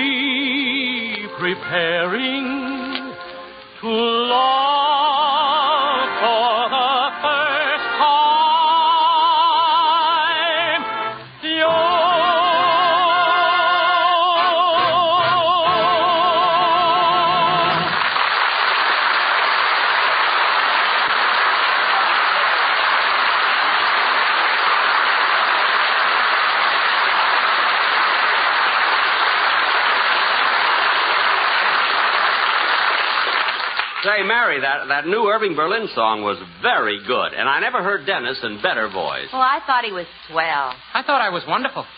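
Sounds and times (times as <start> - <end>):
man singing with vibrato: 0.0 - 18.0
audience applause: 14.2 - 34.6.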